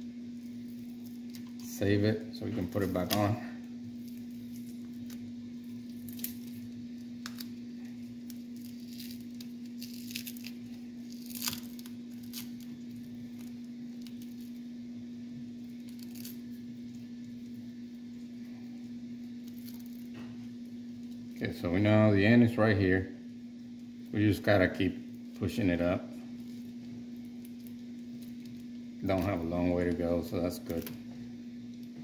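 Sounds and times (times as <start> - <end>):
steady low hum: 0.0 - 32.0
tape peeling off cables: 0.4 - 1.7, 2.6 - 14.7, 15.5 - 21.4, 26.2 - 31.1.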